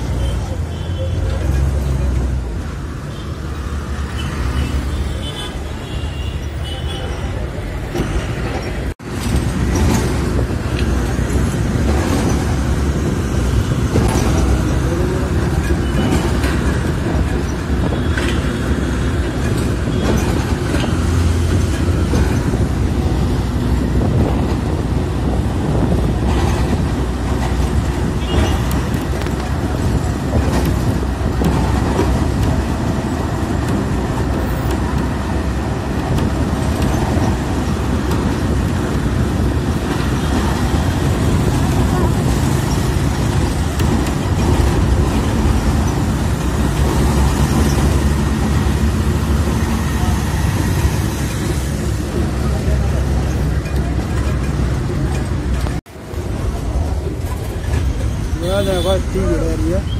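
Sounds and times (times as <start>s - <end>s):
bus engine and road noise: 0.0s - 59.9s.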